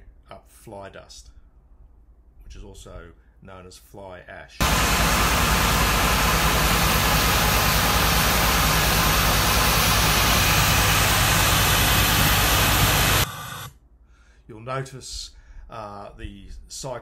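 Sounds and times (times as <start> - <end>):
vacuum air rush with rumble: 4.6 - 13.7.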